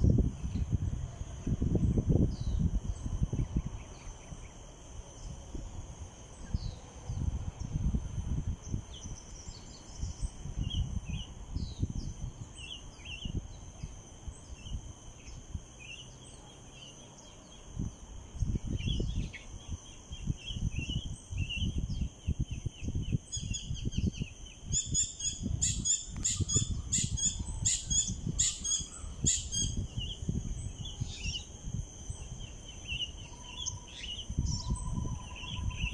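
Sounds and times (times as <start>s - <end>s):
birds chirping: 8.6s - 35.9s
repeated bird call notes: 8.6s - 35.9s.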